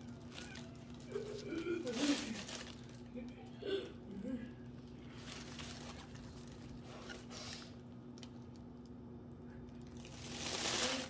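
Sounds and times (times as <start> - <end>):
paper rustling: 0.0 - 3.0, 5.1 - 7.7, 9.9 - 11.0
faint steady hum: 0.0 - 11.0.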